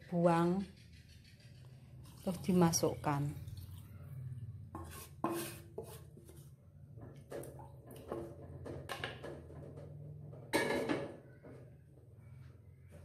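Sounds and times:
wok and spatula scraping saucepan: 0:04.7 - 0:06.6.

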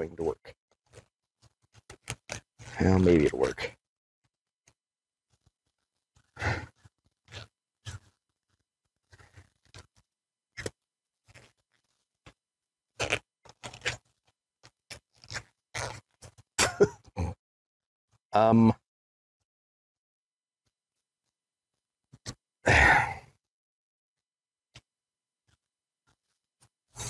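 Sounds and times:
rubber glove squeaking and snapping: 0:00.7 - 0:03.5, 0:04.2 - 0:16.9, 0:22.1 - 0:22.4.

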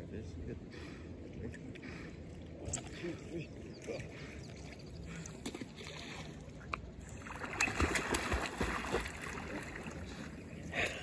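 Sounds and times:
lake water sloshing: 0:01.8 - 0:10.7
dog splashing through water: 0:07.4 - 0:09.8.

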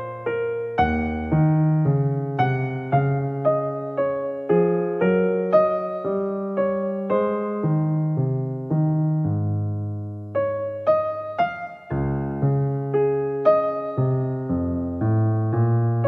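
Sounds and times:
soft electric piano music: 0:00.0 - 0:16.0.

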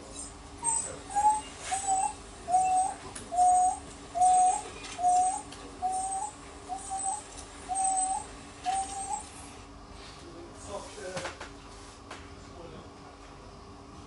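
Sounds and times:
wild dog whining: 0:00.0 - 0:09.4.

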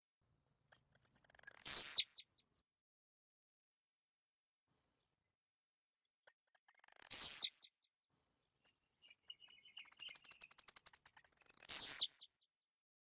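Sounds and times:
bird singing high ticking notes: 0:00.7 - 0:02.3, 0:06.3 - 0:12.4.

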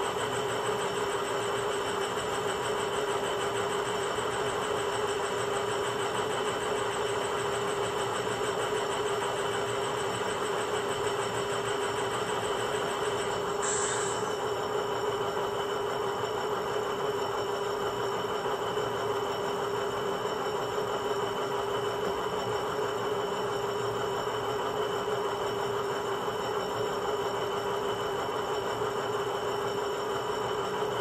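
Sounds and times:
diesel locomotive sound from small speaker: 0:00.0 - 0:21.3.

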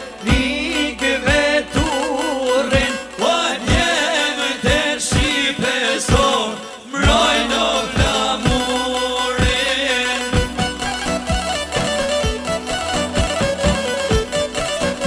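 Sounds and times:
man singing: 0:00.0 - 0:10.8
steady drum beat: 0:00.0 - 0:15.0.

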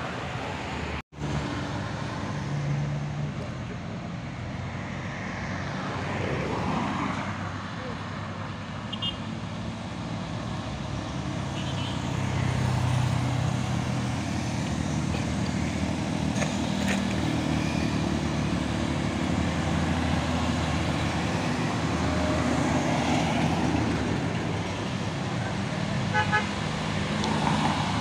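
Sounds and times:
cars passing: 0:00.0 - 0:28.0
truck diesel engine pulling uphill: 0:12.2 - 0:28.0.

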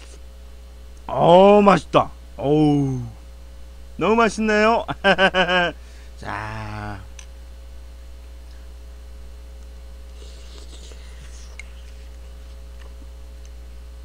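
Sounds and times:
electrical mains hum: 0:00.0 - 0:14.0
chewing: 0:10.0 - 0:13.6.

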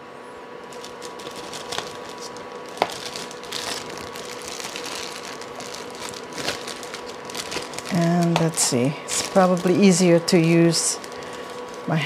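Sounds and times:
plastic bag crinkling and rustling: 0:00.6 - 0:12.0.

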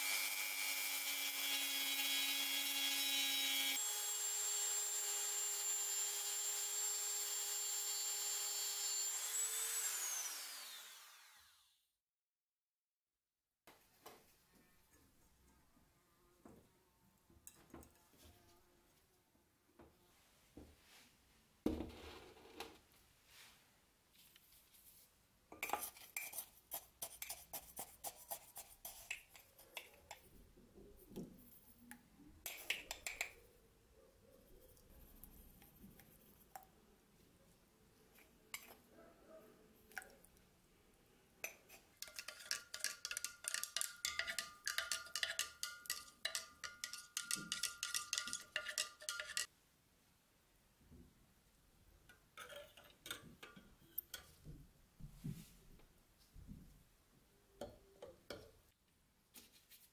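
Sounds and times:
spoon stirring in glass jar: 0:25.6 - 0:30.4, 0:41.4 - 0:49.5, 0:52.4 - 0:54.4
metal spoon clinking glass jars: 0:41.5 - 0:49.5, 0:52.4 - 0:54.4.

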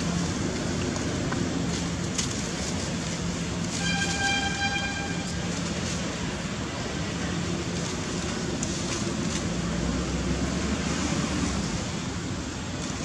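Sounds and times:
background traffic: 0:00.0 - 0:13.0
vehicle horn: 0:03.7 - 0:05.5.

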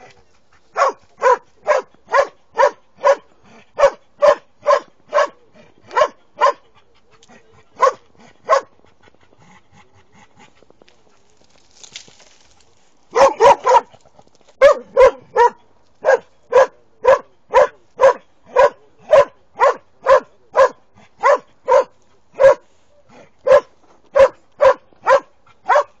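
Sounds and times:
hound baying and barking: 0:00.0 - 0:09.1, 0:13.1 - 0:22.7, 0:23.4 - 0:26.0.

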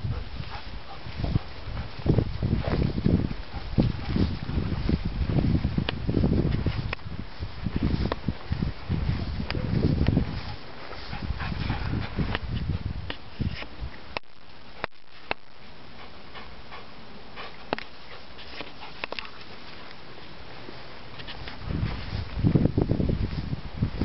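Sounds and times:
dog panting: 0:00.0 - 0:02.1, 0:03.2 - 0:04.8, 0:10.3 - 0:12.9, 0:15.9 - 0:19.5.

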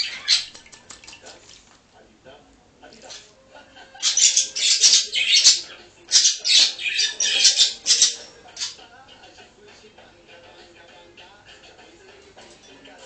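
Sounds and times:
bird splashing in water: 0:00.2 - 0:01.7.

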